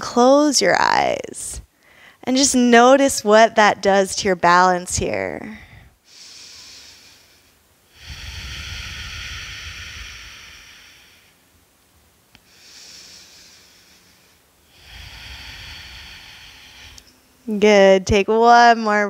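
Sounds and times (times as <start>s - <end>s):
deep breaths into microphone: 1.8s - 2.2s, 5.6s - 11.5s, 12.4s - 17.4s.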